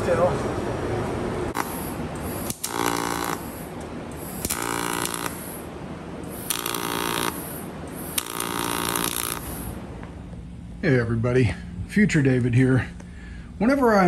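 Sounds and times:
welder buzzing: 1.5s - 10.1s.

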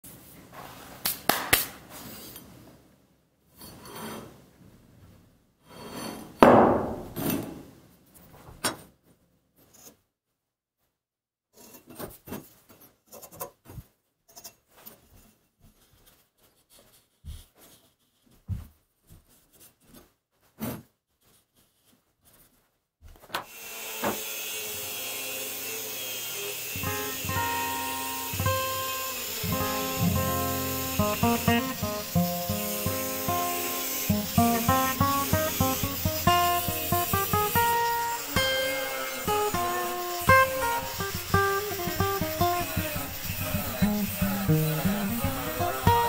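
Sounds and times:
metal knocks on workbench: 6.4s - 7.6s.

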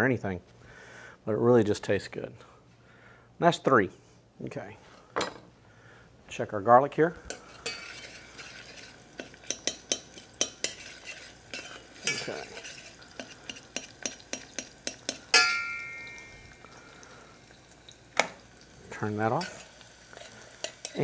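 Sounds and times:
utensil scraping a pan: 7.3s - 16.2s, 19.2s - 21.0s
garlic frying in oil: 7.3s - 21.0s
metallic clang ringing: 15.3s - 16.4s.

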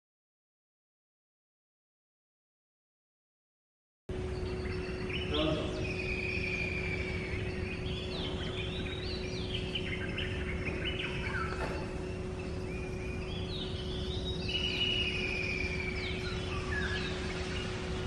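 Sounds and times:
faint constant hum: 4.1s - 18.0s
wild birds chirping: 4.1s - 18.0s
bird whistle: 4.5s - 18.0s.

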